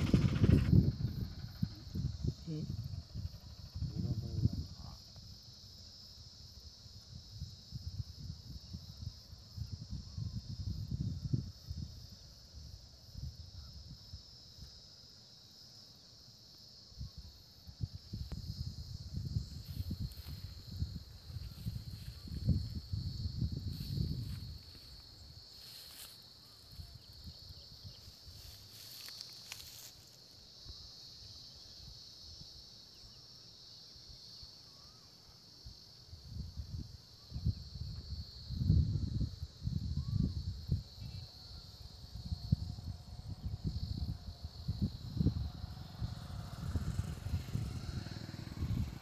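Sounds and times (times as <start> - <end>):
low rumbling: 0.0 - 4.4
insects chirping: 0.0 - 49.0.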